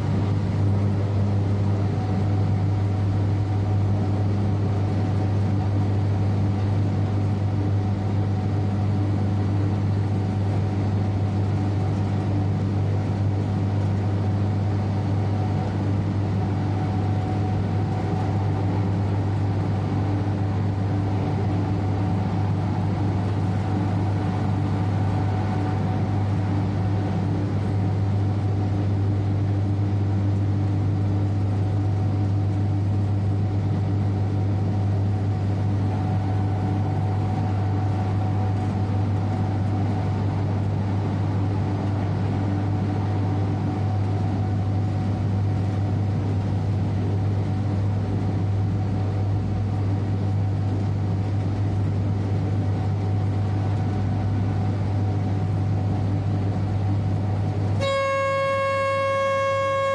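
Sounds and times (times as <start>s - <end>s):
train droning hum: 0.0s - 59.9s
faint steady higher tones: 57.8s - 59.9s.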